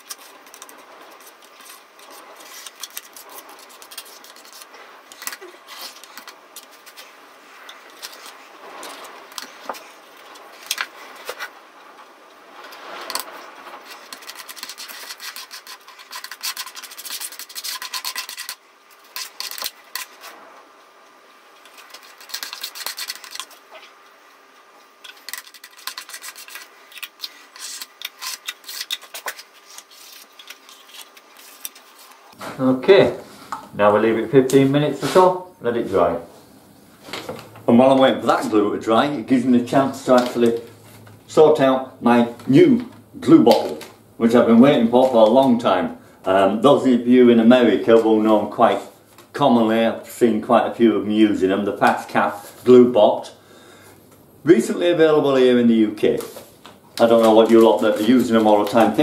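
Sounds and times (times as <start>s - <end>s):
spreader scraping adhesive on wood: 13.0s - 20.2s.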